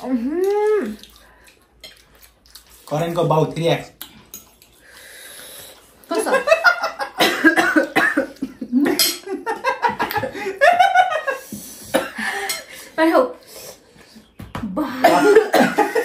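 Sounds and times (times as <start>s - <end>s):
people laughing: 6.1s - 11.6s
people coughing: 7.1s - 8.5s, 11.9s - 12.3s, 15.0s - 16.0s.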